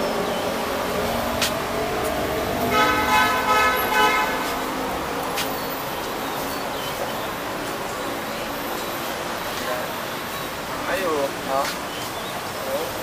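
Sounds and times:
street traffic noise: 0:00.0 - 0:13.0
horn sounding steady note: 0:02.6 - 0:04.8.

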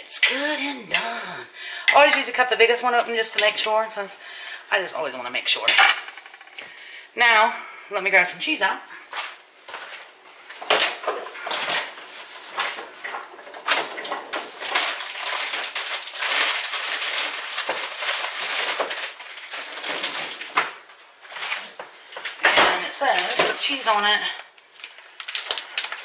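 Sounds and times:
plastic packaging crinkling: 0:10.4 - 0:26.0.

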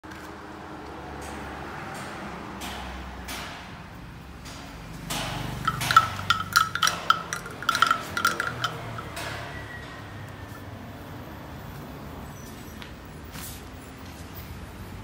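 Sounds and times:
small metal object clinking: 0:05.6 - 0:09.4.

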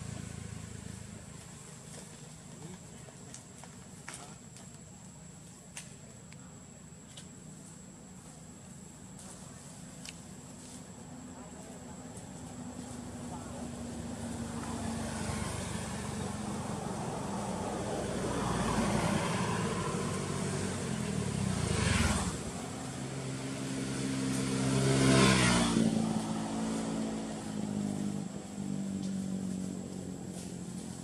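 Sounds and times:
vehicle engine passing by: 0:00.0 - 0:02.3, 0:12.0 - 0:31.0.

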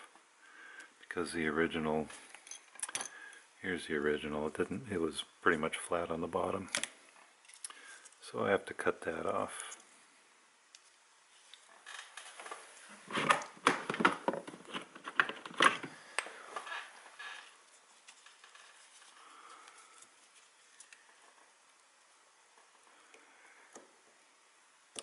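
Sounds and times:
small parts clicking and rustling: 0:02.1 - 0:03.5, 0:06.7 - 0:08.2, 0:10.7 - 0:21.8.

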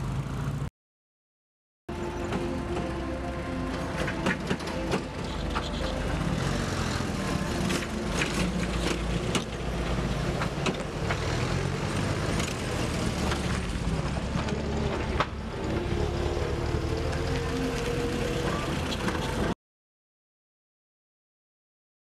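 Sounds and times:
car engines rumbling past: 0:01.9 - 0:19.6.

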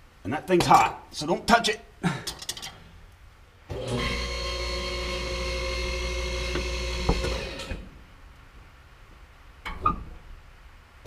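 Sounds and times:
power tool whining: 0:03.7 - 0:07.9.

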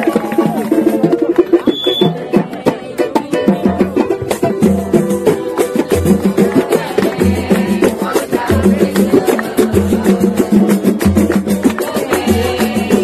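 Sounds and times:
sharp hand-drum strokes: 0:00.0 - 0:13.0
cavaquinhos strumming chords: 0:01.1 - 0:13.0.

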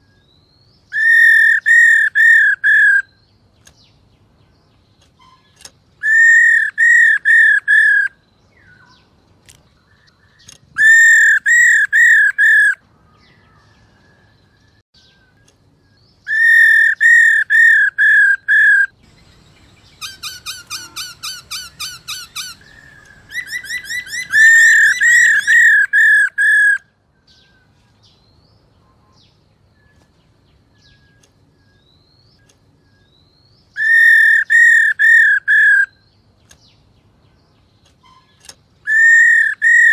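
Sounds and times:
bird calling rolling notes: 0:16.3 - 0:26.8, 0:33.8 - 0:36.0.

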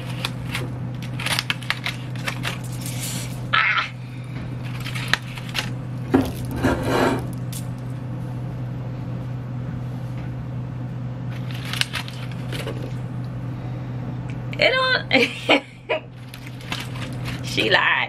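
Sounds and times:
aluminium foil crinkling: 0:00.0 - 0:03.8, 0:04.6 - 0:06.6, 0:11.3 - 0:13.1, 0:16.1 - 0:17.7
steady low hum: 0:00.0 - 0:18.0.

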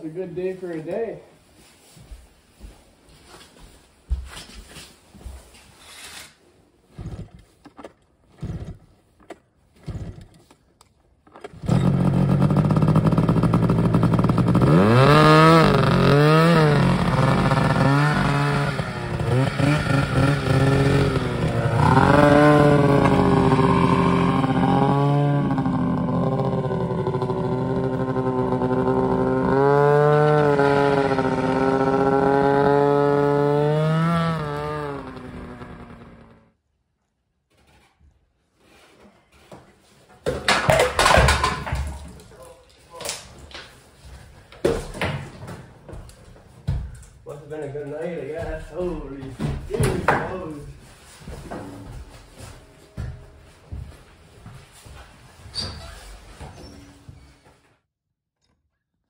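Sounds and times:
knocks and clothing rustles: 0:00.2 - 0:06.2, 0:48.0 - 0:57.6
snowmobile engine revving: 0:11.6 - 0:36.5.

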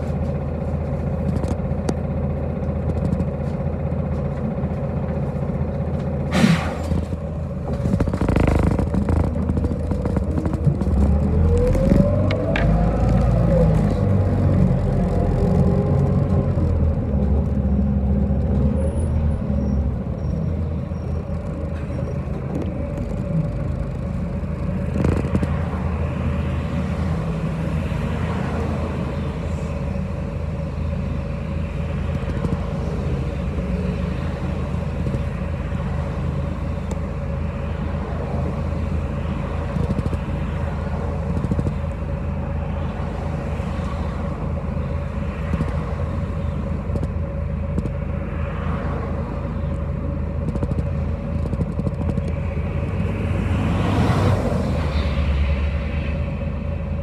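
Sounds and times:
bus engine drone: 0:00.0 - 0:57.0
road noise: 0:00.0 - 0:57.0.

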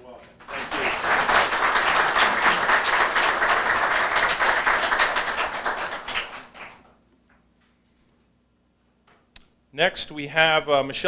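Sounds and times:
people applauding: 0:00.4 - 0:06.9.

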